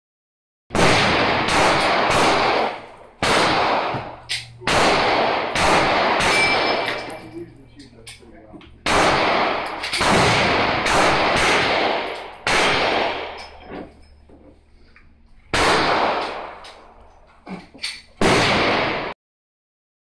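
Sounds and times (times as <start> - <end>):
pistol shots with long echo: 0.7 - 7.2, 8.8 - 13.6, 15.5 - 16.9, 18.2 - 19.1.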